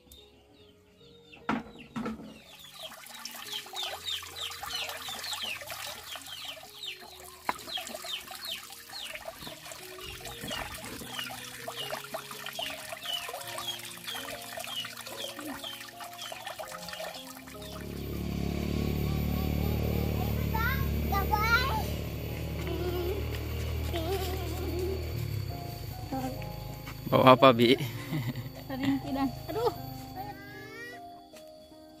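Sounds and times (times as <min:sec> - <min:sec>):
poultry peeping: 0:00.2 - 0:17.8.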